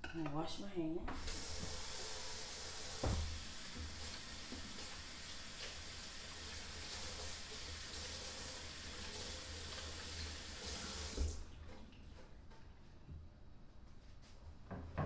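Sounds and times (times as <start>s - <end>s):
tap running into sink: 1.1s - 7.2s, 9.1s - 11.4s.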